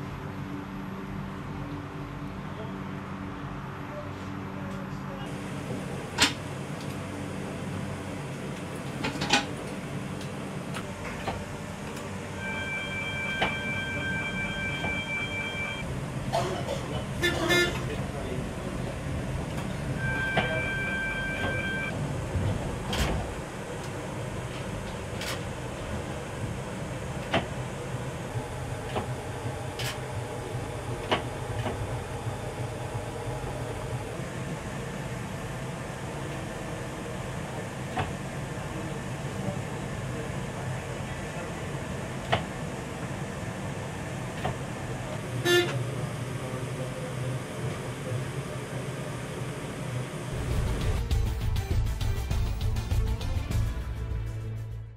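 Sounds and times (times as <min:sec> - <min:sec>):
tram cab hum: 0:00.0 - 0:54.9
steady electronic beep: 0:12.4 - 0:15.9, 0:20.0 - 0:21.9
low running hum: 0:21.0 - 0:47.1.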